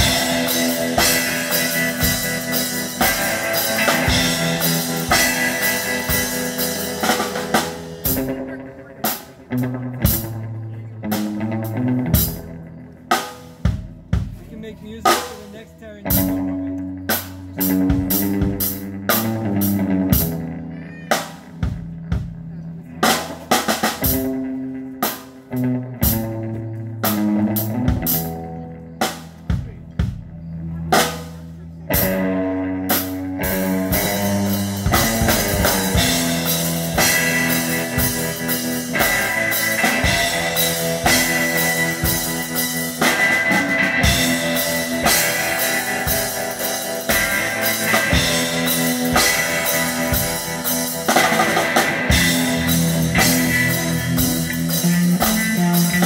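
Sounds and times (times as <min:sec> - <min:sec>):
live band with drums and guitar: 0:00.0 - 0:56.0.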